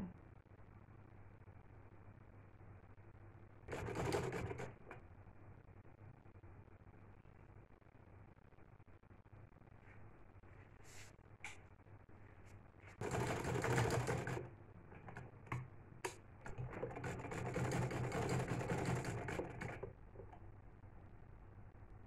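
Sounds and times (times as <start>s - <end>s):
sewing machine stitching: 3.7s - 5.0s, 13.0s - 20.3s.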